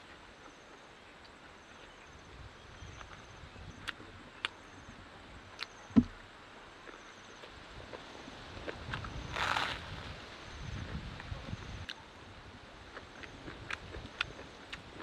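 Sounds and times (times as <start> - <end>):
insects chirping: 8.2 - 12.2
crunching bites of food: 8.7 - 10.0.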